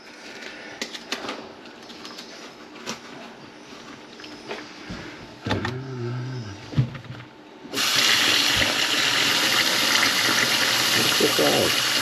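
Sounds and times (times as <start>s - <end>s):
tap water running into sink: 7.8s - 12.0s.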